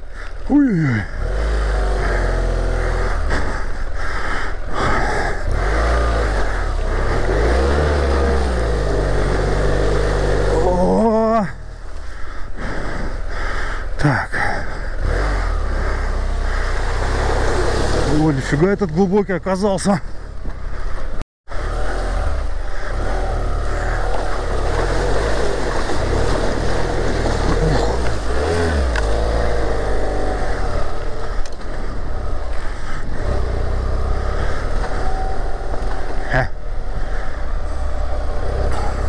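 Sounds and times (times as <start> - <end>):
motorcycle engine under load: 0.0 - 39.0
water rushing: 24.4 - 29.9.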